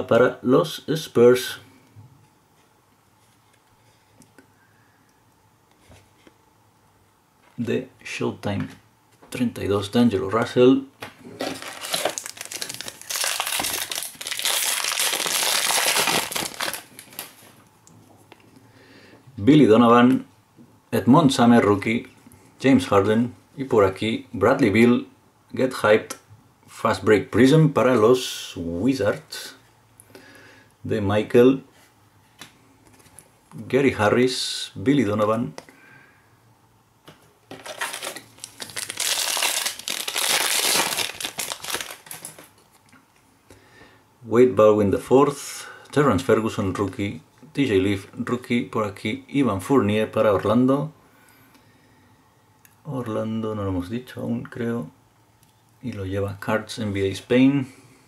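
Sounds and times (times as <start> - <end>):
foil wrapper crinkling: 11.4 - 17.6, 37.5 - 42.6.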